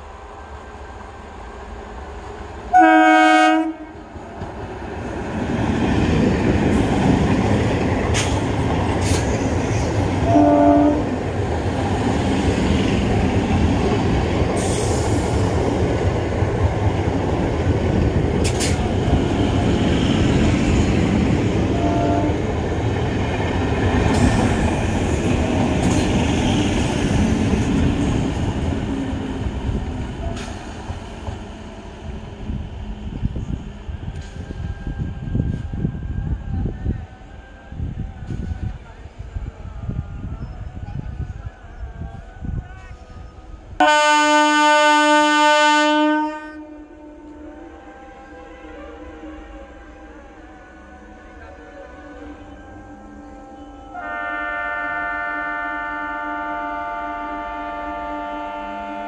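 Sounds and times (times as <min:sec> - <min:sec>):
train rumbling past: 0:00.0 - 0:59.0
train horn blast: 0:02.7 - 0:04.1, 0:10.1 - 0:11.2, 0:21.6 - 0:22.8, 0:43.8 - 0:59.0.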